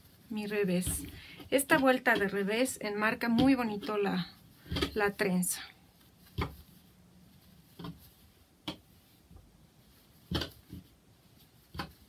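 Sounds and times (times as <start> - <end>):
soft taps and clicks of knitting: 7.7 - 9.5, 10.3 - 12.0.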